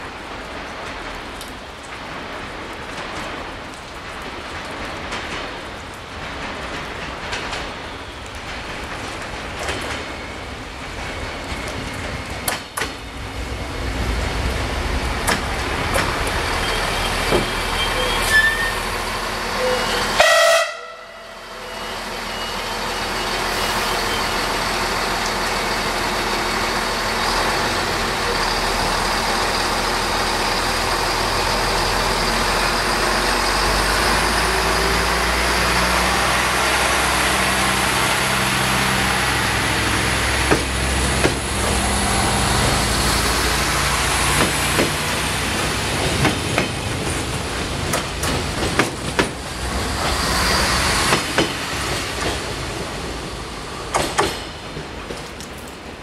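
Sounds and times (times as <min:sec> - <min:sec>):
diesel train passing: 0:00.0 - 0:56.0
train horn toot: 0:19.6 - 0:22.6.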